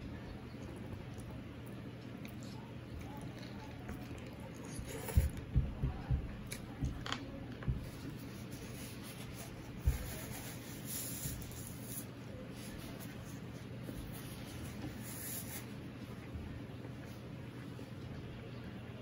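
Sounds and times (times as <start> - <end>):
paper tissue rustling: 7.8 - 16.2.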